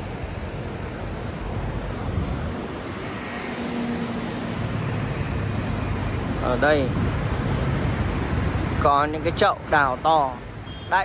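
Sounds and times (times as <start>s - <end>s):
passing traffic rumble: 0.0s - 11.0s
wind on microphone: 1.3s - 8.8s.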